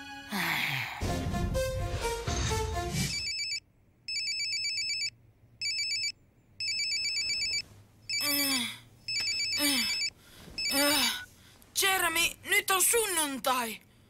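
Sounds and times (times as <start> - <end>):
phone ringtone trilling: 3.1 - 8.5, 9.1 - 11.2.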